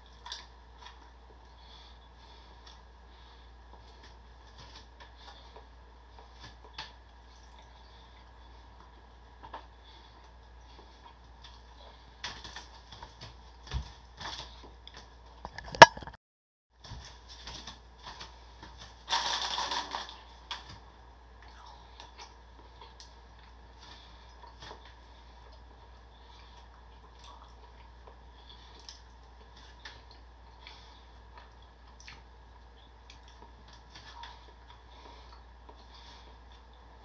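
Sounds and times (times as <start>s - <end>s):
plastic wrapper crinkling: 19.0s - 20.6s.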